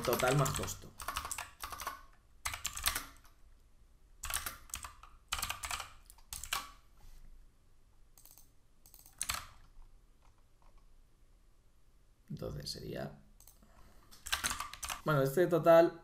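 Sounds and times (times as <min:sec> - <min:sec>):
computer keyboard typing: 0:00.0 - 0:03.4, 0:04.2 - 0:06.8, 0:08.2 - 0:10.8, 0:13.4 - 0:13.6, 0:14.2 - 0:15.0.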